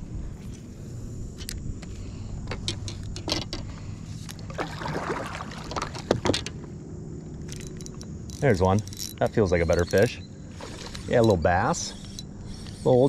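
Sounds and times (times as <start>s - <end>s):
paddle strokes in water: 4.4s - 6.4s.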